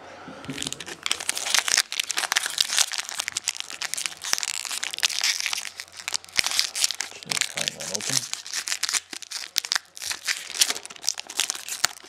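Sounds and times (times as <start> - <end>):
foil wrapper crinkling: 0.5 - 12.0.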